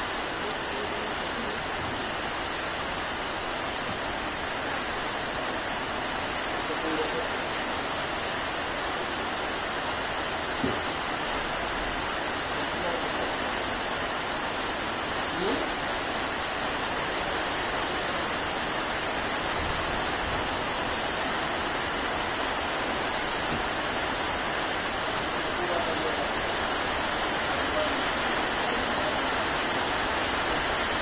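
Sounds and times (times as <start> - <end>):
rain on leaves: 0.0 - 31.0.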